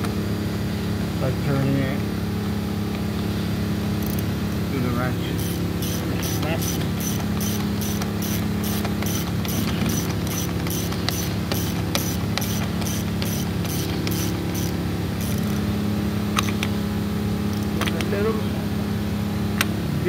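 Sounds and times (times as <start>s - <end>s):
low hum: 0.0s - 20.0s
ratchet wrench clicking: 4.0s - 4.3s, 5.4s - 15.7s, 16.4s - 16.7s, 17.5s - 17.8s.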